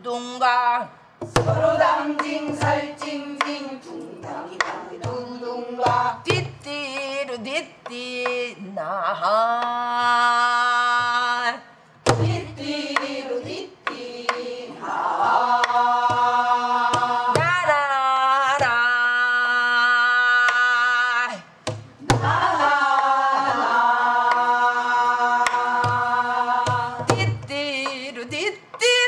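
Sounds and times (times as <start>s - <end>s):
woman singing wordless held notes: 1.5s - 11.7s, 26.9s - 29.0s.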